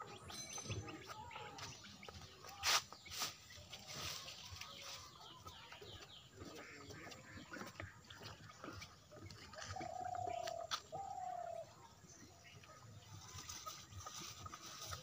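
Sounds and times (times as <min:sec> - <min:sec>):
dry twigs and leaves crackling: 0:01.6 - 0:05.8, 0:13.0 - 0:15.0.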